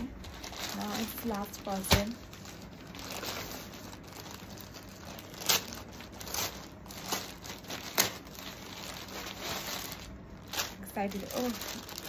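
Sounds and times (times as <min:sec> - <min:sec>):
plastic mailer bag crinkling: 0:00.0 - 0:12.0.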